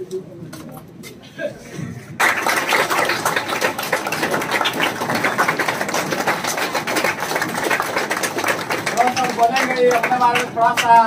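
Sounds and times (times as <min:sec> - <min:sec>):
crowd applauding: 0:02.2 - 0:11.0.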